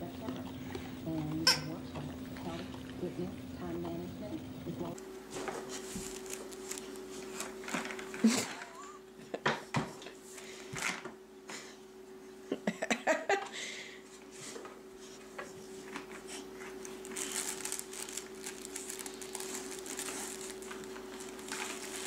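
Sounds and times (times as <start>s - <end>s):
steady hum: 0.0s - 22.0s
fabric toy rustling and crinkling: 5.6s - 8.2s, 16.6s - 22.0s.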